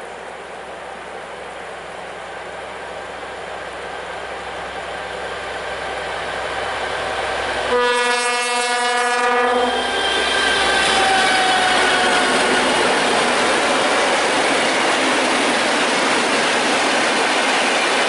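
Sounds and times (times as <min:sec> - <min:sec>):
diesel locomotive passing: 0:00.0 - 0:18.0
locomotive horn blast: 0:07.7 - 0:10.0.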